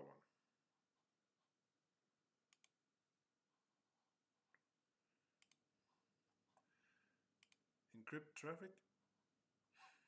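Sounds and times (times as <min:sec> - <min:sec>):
computer mouse clicks: 0:02.5 - 0:02.8, 0:05.4 - 0:05.7, 0:07.4 - 0:07.7.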